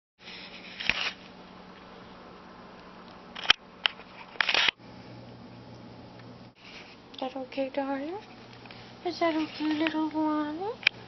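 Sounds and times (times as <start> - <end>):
rustling scrapes: 0.2 - 1.3, 6.6 - 7.0, 9.2 - 10.0
steady low hum: 0.2 - 11.0.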